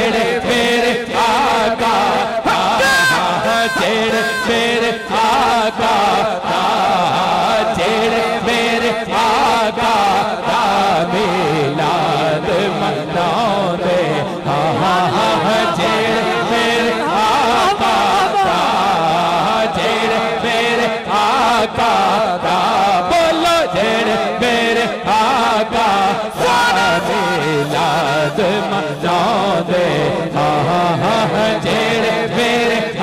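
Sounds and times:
men chanting: 0.0 - 33.0
steady held drone tone: 2.8 - 5.8.

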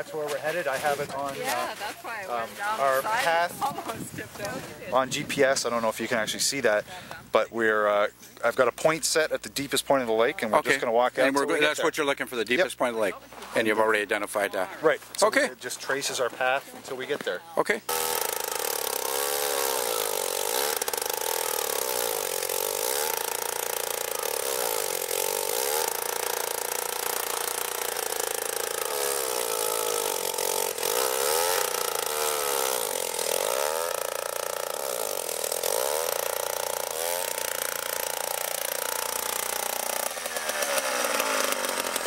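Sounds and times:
ice auger engine running: 17.9 - 42.0.

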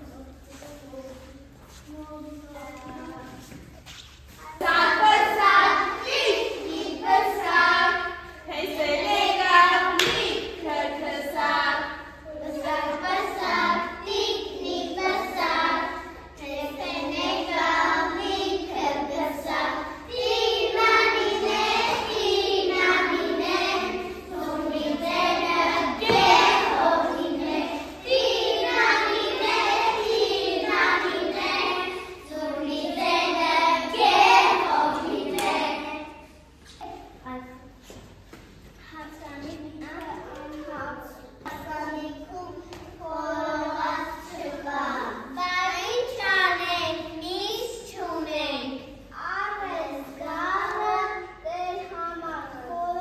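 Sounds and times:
children singing: 4.6 - 36.2.

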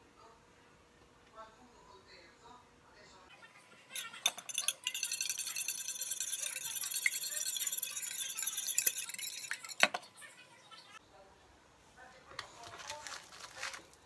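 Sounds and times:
whisk clinking against dish: 3.9 - 10.1.

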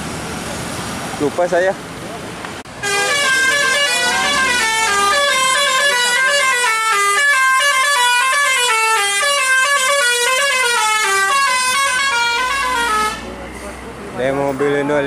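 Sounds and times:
multi-tone air horn melody: 2.8 - 13.3.

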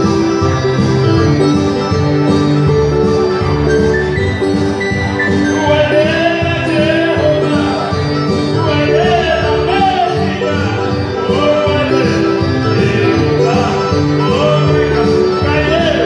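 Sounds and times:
instrumental backing music: 0.0 - 16.0
man singing into a microphone: 5.3 - 16.0.

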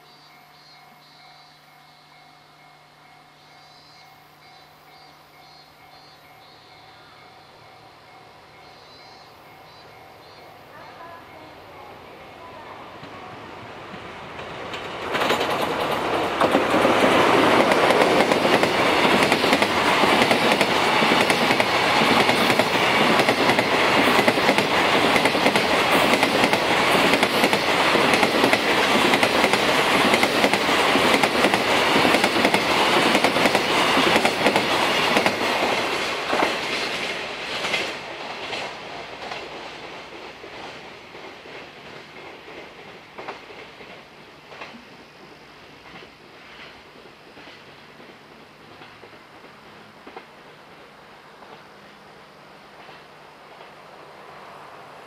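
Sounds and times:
diesel locomotive passing: 0.0 - 55.0
train wheels clattering over rail joints: 14.3 - 44.8.

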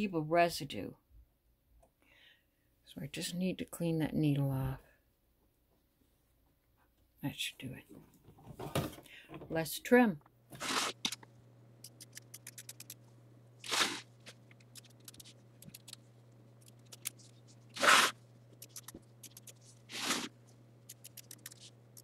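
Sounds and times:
steady low hum: 10.2 - 22.0
scissors snipping fabric: 13.6 - 16.0, 16.6 - 22.0.

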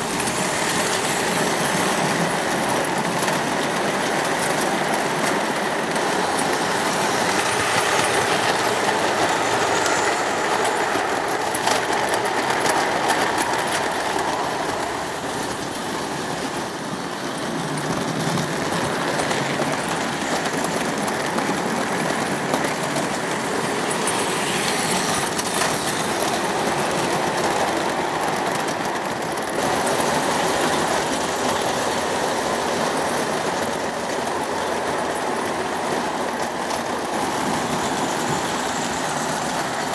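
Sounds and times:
model trains on metal rails: 0.0 - 39.9.

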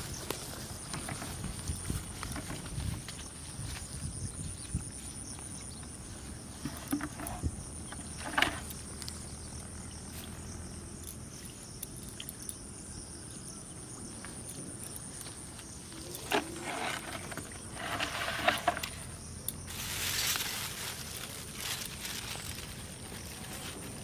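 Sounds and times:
plastic bag rustling: 16.2 - 24.0.

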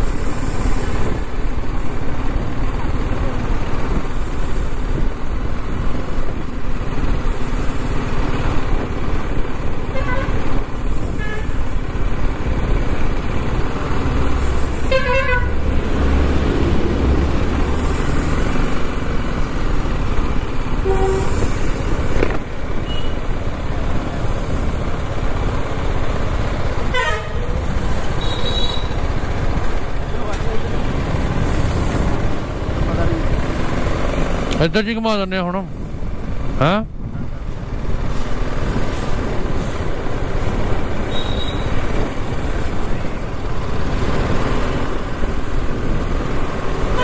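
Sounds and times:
motorcycle engine: 5.3 - 34.7
vehicle horns honking: 9.9 - 10.5, 11.1 - 11.7, 14.8 - 15.6, 20.8 - 21.5, 22.8 - 23.2, 26.9 - 29.0, 41.1 - 41.8.

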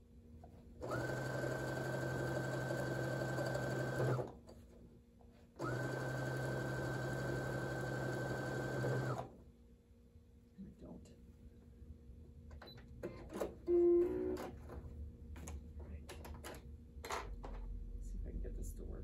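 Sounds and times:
sewing machine motor whine: 0.8 - 4.3, 5.6 - 9.3
sewing machine stitching: 0.8 - 4.4, 5.6 - 9.3.

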